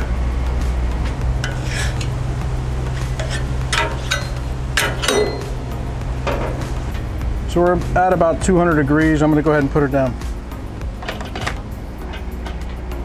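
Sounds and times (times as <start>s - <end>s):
steady low hum: 0.0s - 13.0s
metal spatula scraping griddle: 1.4s - 6.8s.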